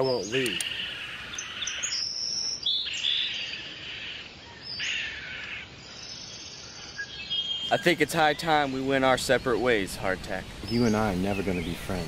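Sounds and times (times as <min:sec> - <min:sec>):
rough hissy bird call: 0:00.0 - 0:05.7.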